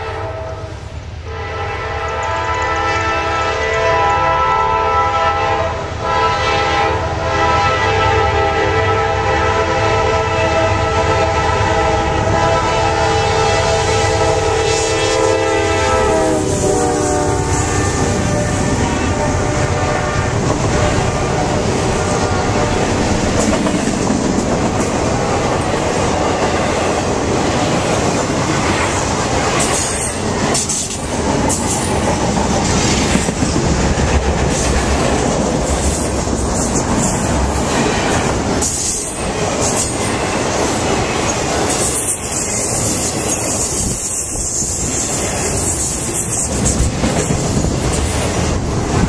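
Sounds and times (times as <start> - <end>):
train wheels rumbling on rails: 0.0 - 49.0
wheels clacking over rail joints: 20.3 - 49.0.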